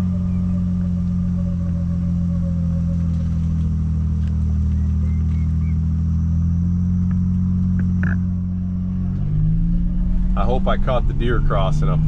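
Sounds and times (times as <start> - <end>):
utility vehicle engine humming: 0.0 - 12.0.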